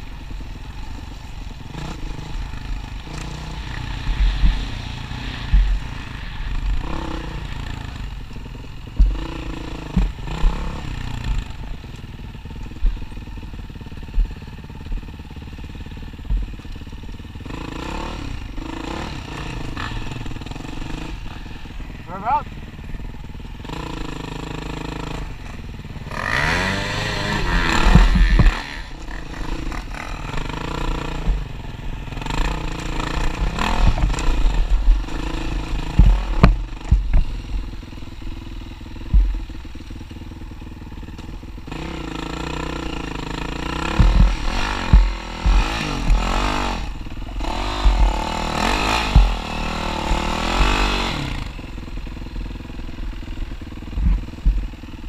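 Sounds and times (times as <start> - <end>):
dirt bike engine revving: 0.0 - 55.0
bike knocks and clatter: 27.7 - 30.0, 35.9 - 37.4, 43.6 - 46.8, 53.9 - 54.6.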